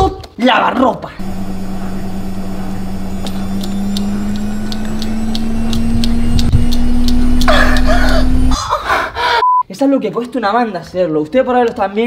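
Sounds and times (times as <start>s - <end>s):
washing machine motor hum: 1.2s - 8.6s
light ticking: 3.1s - 8.2s.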